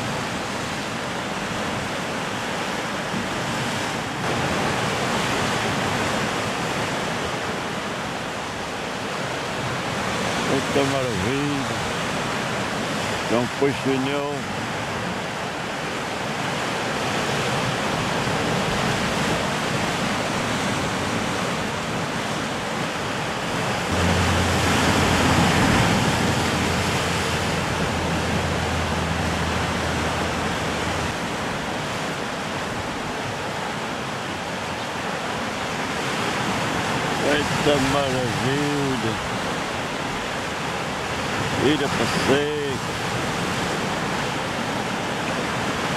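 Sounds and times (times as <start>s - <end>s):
surf breaking against rocks: 17.0s - 45.9s.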